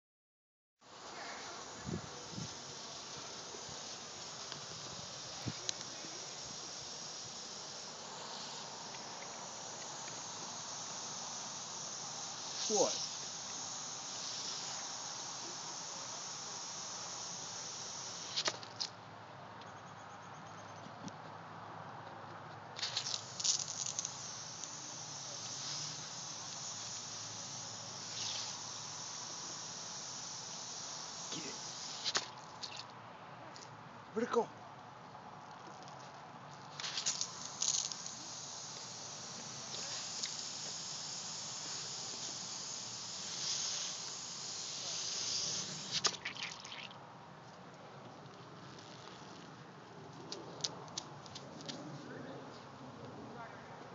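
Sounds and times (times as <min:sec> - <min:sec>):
sprinkler spraying water: 0:01.2 - 0:18.8, 0:22.8 - 0:32.9, 0:36.7 - 0:47.0
sprinkler clicks: 0:22.8 - 0:24.8, 0:36.7 - 0:40.5.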